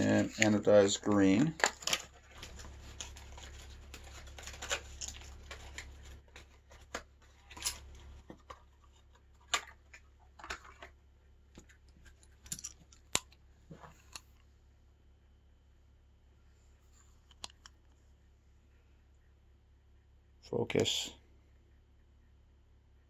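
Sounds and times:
faint low hum: 0:00.0 - 0:23.0
bicycle parts clicking and rustling: 0:11.6 - 0:14.4.

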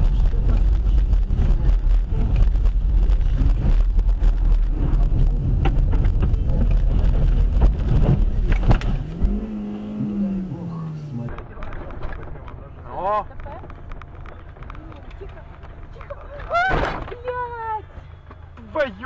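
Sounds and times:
steady hum: 0:00.0 - 0:11.4
wind buffeting microphone: 0:00.0 - 0:12.4.

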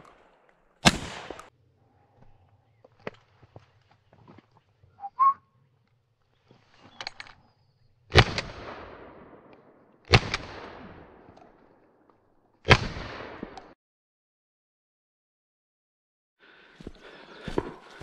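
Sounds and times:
shotgun shots echoing: 0:00.0 - 0:01.5, 0:08.1 - 0:11.4, 0:12.6 - 0:13.8
short whistle: 0:05.0 - 0:05.4.

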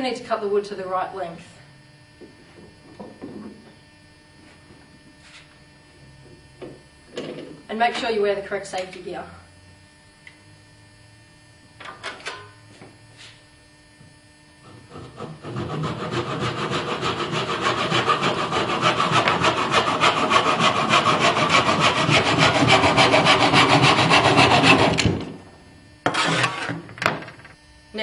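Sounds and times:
hand saw cutting wood: 0:14.6 - 0:25.2, 0:26.1 - 0:26.8.

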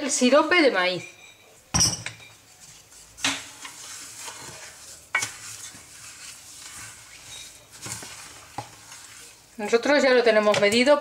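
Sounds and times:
wooden spoon scraping saucepan: 0:02.2 - 0:11.0.

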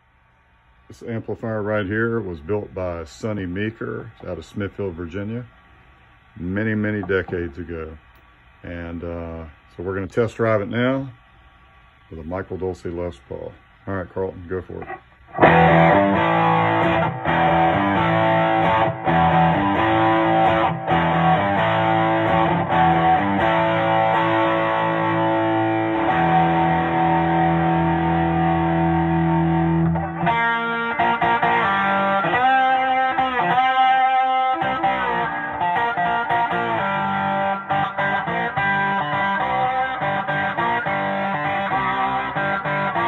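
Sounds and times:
overdriven electric guitar: 0:14.7 - 0:43.0.

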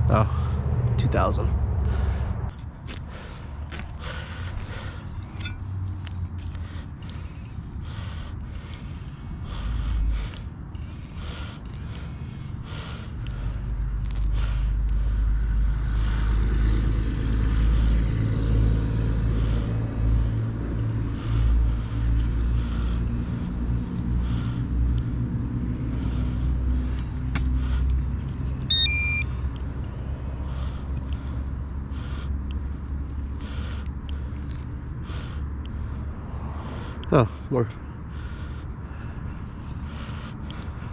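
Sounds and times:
vehicle engine running: 0:00.0 - 0:40.9
electronic beep: 0:28.7 - 0:29.4.

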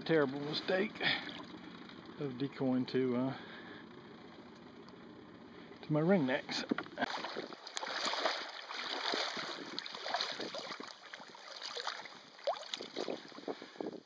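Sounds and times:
water splashing against boat: 0:00.0 - 0:02.2, 0:06.4 - 0:14.0.

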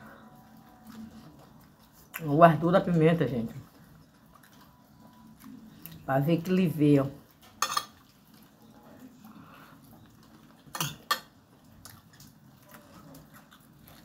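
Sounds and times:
metal cutlery clinking on glass plate: 0:07.3 - 0:08.2, 0:10.6 - 0:11.4.

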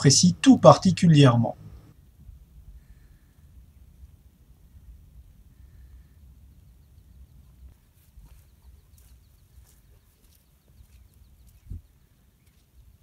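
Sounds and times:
footsteps on rocky path: 0:07.7 - 0:13.0.

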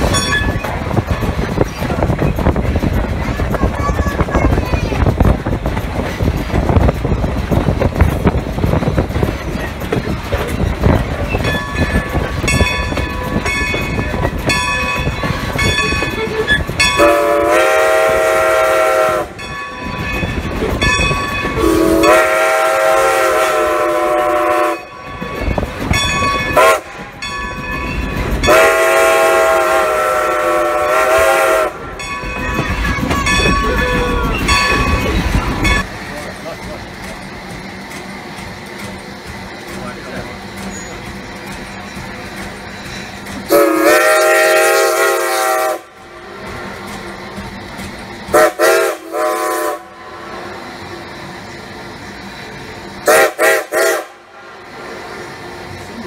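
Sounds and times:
locomotive bell ringing: 0:00.0 - 0:01.4, 0:11.0 - 0:17.3, 0:19.2 - 0:22.4, 0:24.6 - 0:29.1, 0:31.8 - 0:36.2
steam locomotive wheels clattering: 0:00.0 - 0:56.0
steam whistle: 0:17.0 - 0:19.3, 0:21.6 - 0:24.9, 0:26.6 - 0:26.8, 0:28.5 - 0:31.8, 0:43.5 - 0:45.9, 0:48.3 - 0:50.0, 0:53.0 - 0:54.2.

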